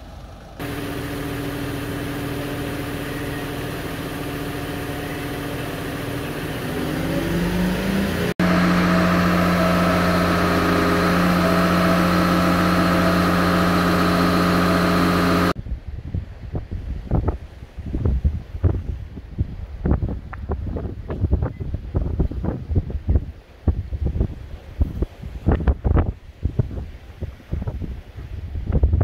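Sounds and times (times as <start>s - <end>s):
crane diesel engine running: 0.0s - 15.6s.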